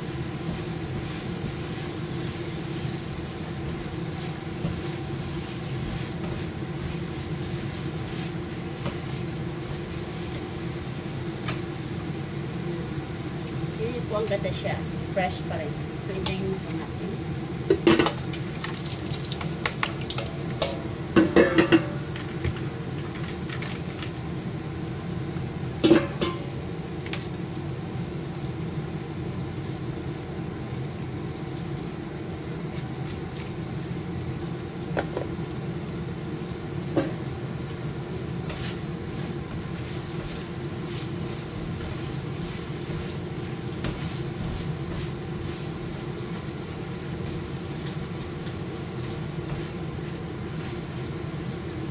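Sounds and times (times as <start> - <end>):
food sizzling in a pan: 0.0 - 51.9
metal clanks against pan: 17.7 - 18.2, 19.8 - 22.3, 25.8 - 26.5
spatula scraping: 38.4 - 46.0.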